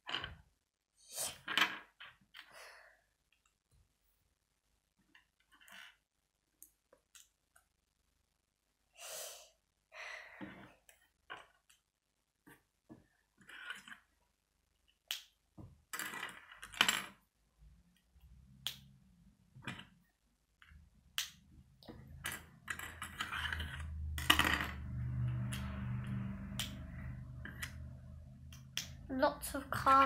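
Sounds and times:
plastic pieces clicking on a wooden table: 15.1 - 17.2, 22.1 - 24.8
passing car traffic rumble: 23.5 - 28.5.

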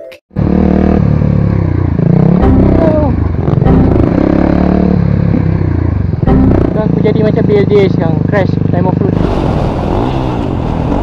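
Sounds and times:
motorcycle engine revving: 0.4 - 11.0.

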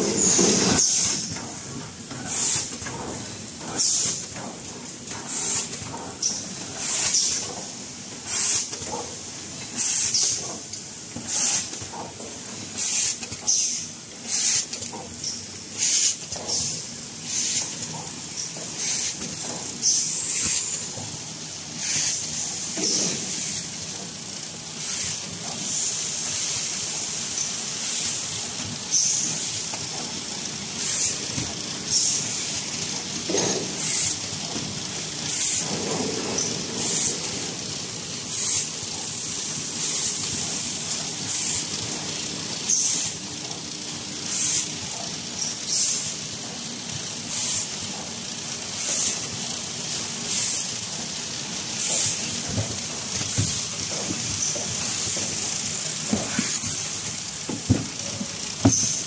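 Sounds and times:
packing machine humming and whining: 0.0 - 59.0
short sharp air hisses: 11.3 - 11.7, 38.3 - 38.6, 47.3 - 47.7, 50.3 - 50.7.

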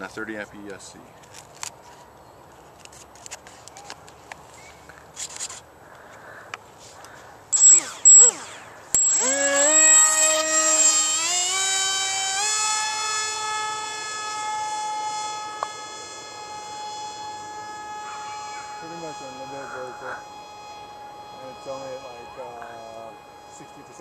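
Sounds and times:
electric motor propeller whine: 7.1 - 24.0.

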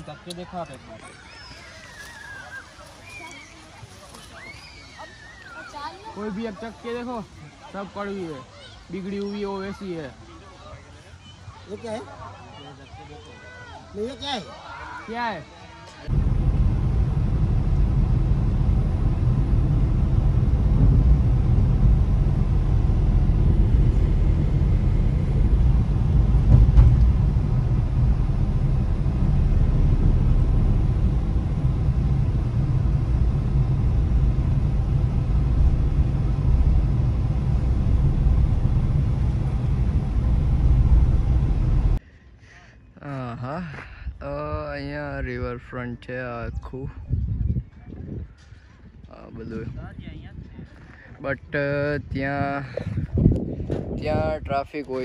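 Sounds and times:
car engine and road noise: 16.1 - 42.0.

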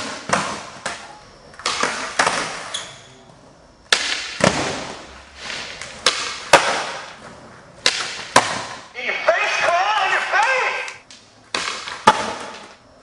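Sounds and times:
skateboard landing cracks: 0.0 - 2.7, 3.9 - 7.2, 7.8 - 8.9, 11.1 - 12.8
skateboard tail pops: 0.0 - 2.7, 3.9 - 7.2, 7.8 - 8.8, 11.5 - 12.7
skateboard wheels rolling: 4.4 - 8.6.

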